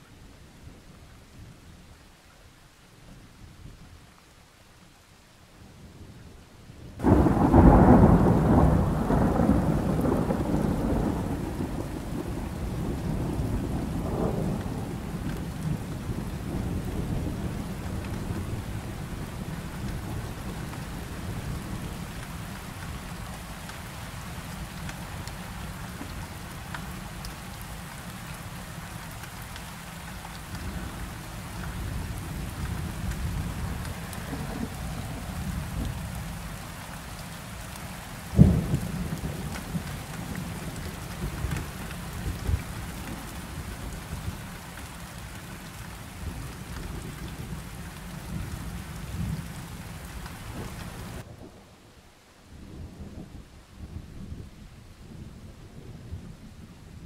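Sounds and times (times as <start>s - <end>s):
steady rain: 0.0s - 57.0s
thunder clap: 7.0s - 15.8s, 38.3s - 43.3s
thunder rumbling: 7.0s - 27.2s, 30.5s - 51.7s.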